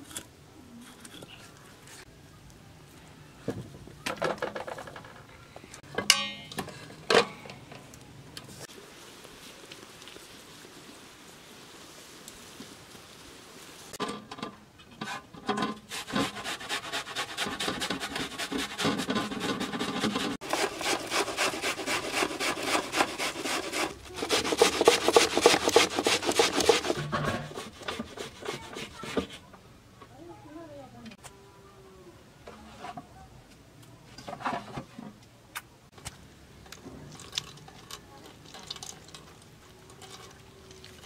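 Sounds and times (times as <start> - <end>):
onion grated on box grater: 15.9 - 29.4.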